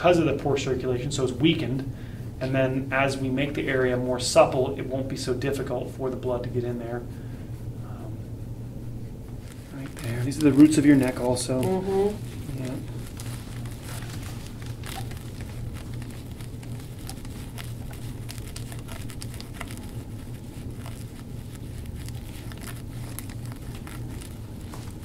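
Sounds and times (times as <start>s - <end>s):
steady low hum: 0.0s - 25.0s
scraping tool crackling on skin: 9.2s - 25.0s.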